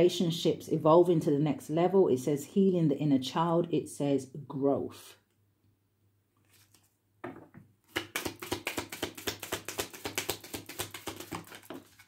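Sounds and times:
cards shuffling: 6.4s - 6.9s, 7.9s - 12.0s.

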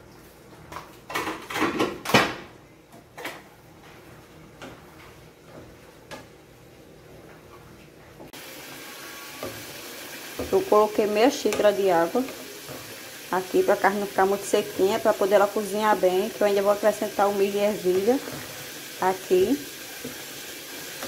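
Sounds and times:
meat sizzling hiss: 8.4s - 15.7s, 16.3s - 21.0s.

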